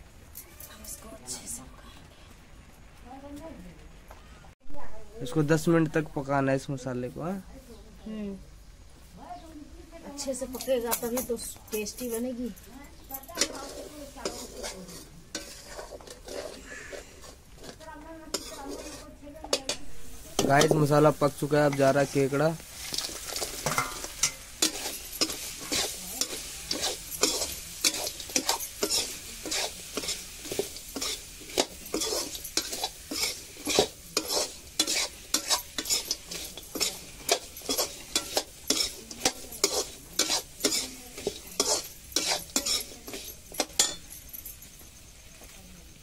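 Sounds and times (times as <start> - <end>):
crab frying in oil sizzling: 12.9 - 46.0
metal spatula scraping pan: 13.2 - 44.2.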